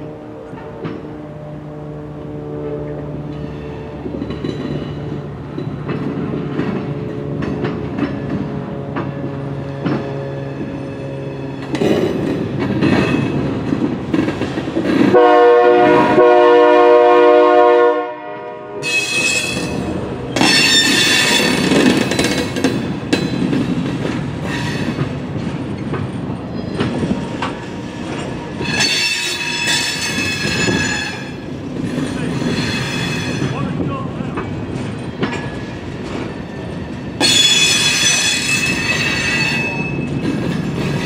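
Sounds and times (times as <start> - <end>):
train horn blast: 0.0 - 4.1, 15.1 - 21.7
train rumble: 0.0 - 41.0
high-pitched squealing: 18.8 - 23.0.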